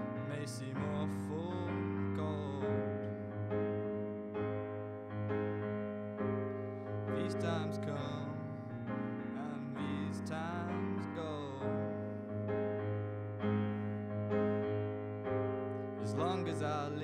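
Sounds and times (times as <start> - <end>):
man singing: 0.0 - 3.2, 7.1 - 12.0, 16.0 - 17.0
stage piano chords: 0.0 - 17.0.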